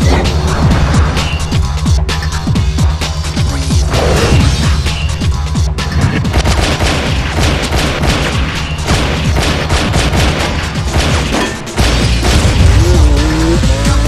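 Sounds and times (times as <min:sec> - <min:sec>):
background music score: 0:00.0 - 0:14.0
rapid handgun gunfire: 0:06.3 - 0:13.0.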